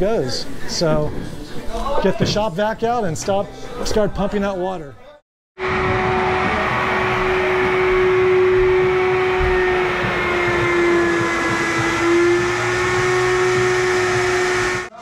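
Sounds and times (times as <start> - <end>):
shop vacuum motor whine: 5.6 - 14.9.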